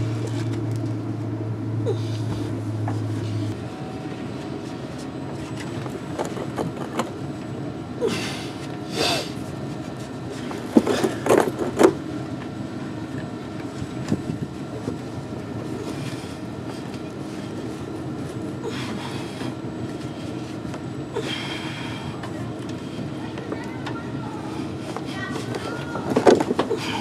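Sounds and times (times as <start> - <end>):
knocks and clunks of hose: 25.5 - 26.8.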